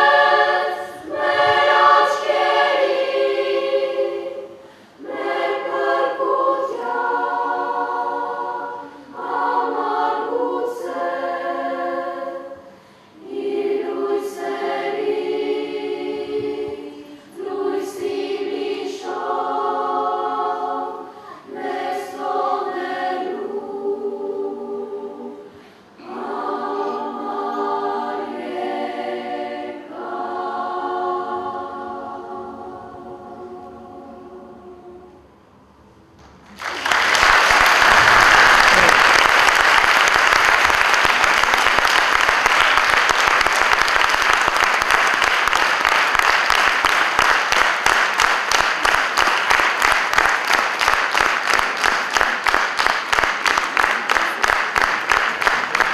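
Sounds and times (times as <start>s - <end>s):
children's choir singing: 0.0s - 35.6s, 36.6s - 55.9s
audience applause: 36.4s - 55.9s.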